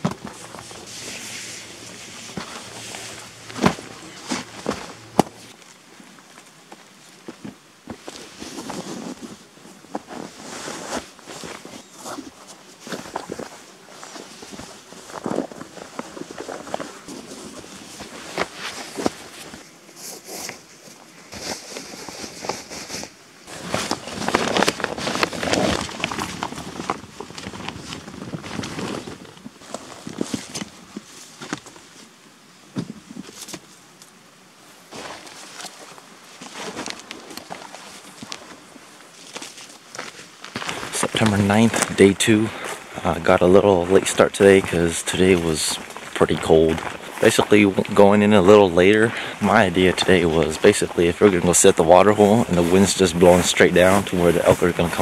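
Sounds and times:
plastic tarp crinkling: 0:00.0 - 0:05.7, 0:21.4 - 0:30.9, 0:34.9 - 0:55.0
nylon tent fabric rustling: 0:00.0 - 0:32.1, 0:34.8 - 0:55.0.

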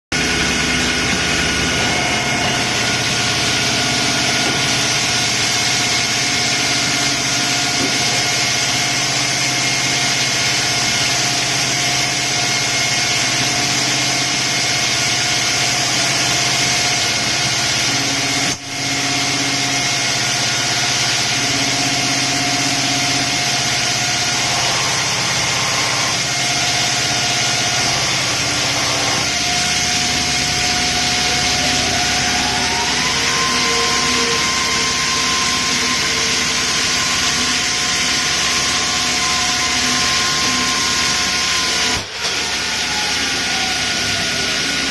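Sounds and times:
machine whining tones: 0:00.1 - 0:44.9
polishing machine running with hiss: 0:00.2 - 0:44.9.

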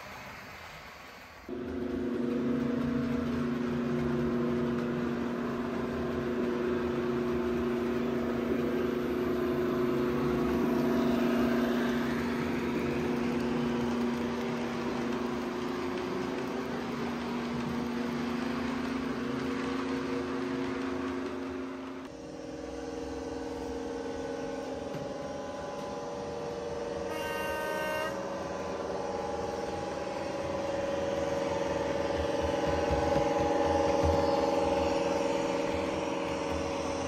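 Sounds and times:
diesel engine drone: 0:01.5 - 0:37.0.

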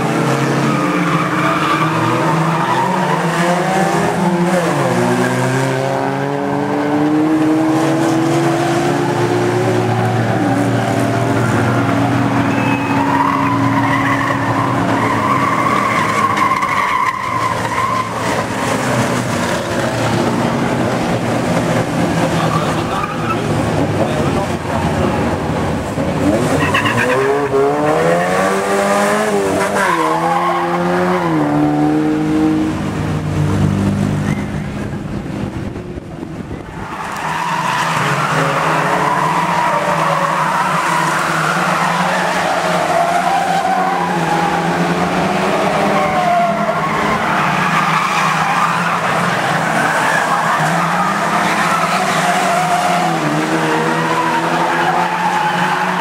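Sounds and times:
stock car engines revving: 0:00.0 - 0:56.0
tyre squeal: 0:12.4 - 0:18.6, 0:34.2 - 0:34.8.

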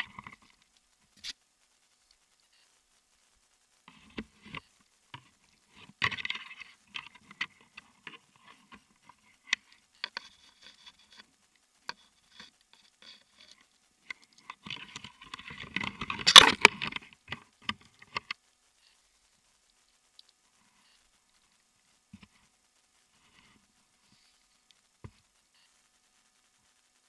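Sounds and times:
rope and carabiner clicks and rustles: 0:11.9 - 0:18.4.

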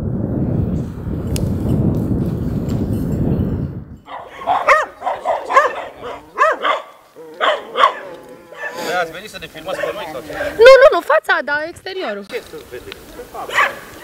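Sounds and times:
steady low rumble: 0:00.0 - 0:04.0
dog barking: 0:04.1 - 0:09.0, 0:09.7 - 0:10.2, 0:13.2 - 0:14.0.

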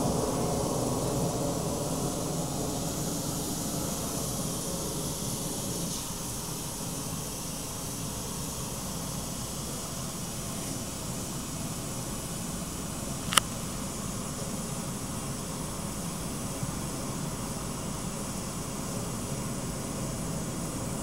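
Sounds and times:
flare burning with a hiss: 0:00.0 - 0:21.0.

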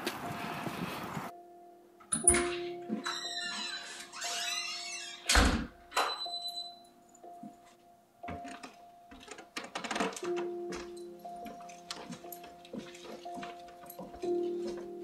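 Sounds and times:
door swinging shut with thud: 0:05.3 - 0:06.2
footsteps on wooden floor: 0:07.4 - 0:15.0.

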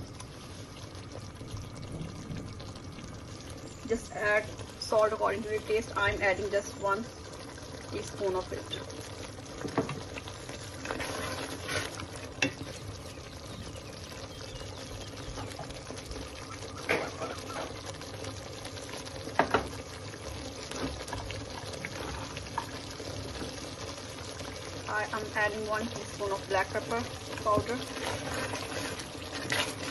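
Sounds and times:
sauce bubbling in a pot: 0:00.0 - 0:29.9
spatula stirring: 0:09.6 - 0:12.9, 0:27.1 - 0:29.9.

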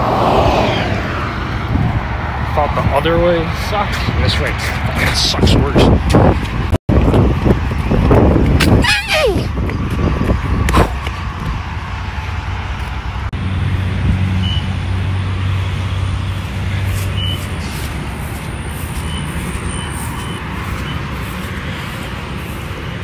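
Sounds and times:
highway traffic: 0:00.0 - 0:23.0
vehicle engine hum: 0:00.0 - 0:23.0.

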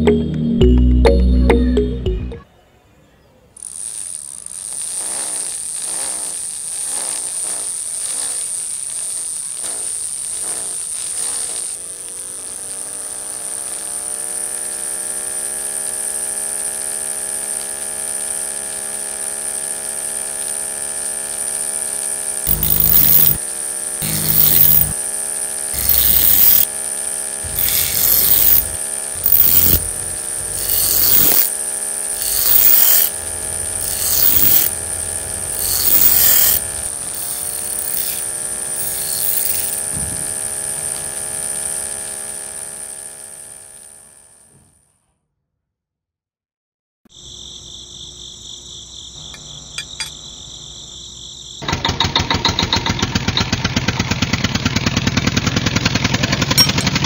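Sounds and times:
blade grinding on sanding disc: 0:03.6 - 0:44.3
small motor whining: 0:03.6 - 0:44.9.

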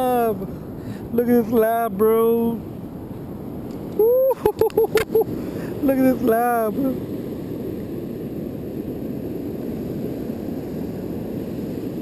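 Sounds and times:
wind buffeting microphone: 0:00.0 - 0:12.0
surf breaking on beach: 0:03.5 - 0:12.0.

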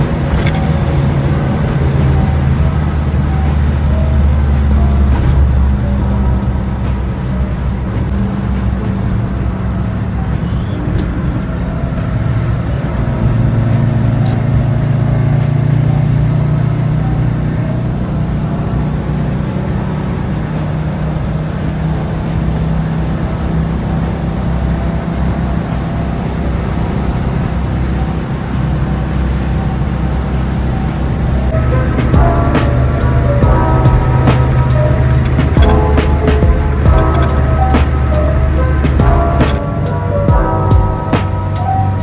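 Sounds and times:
car engine and road noise: 0:00.0 - 0:42.0.

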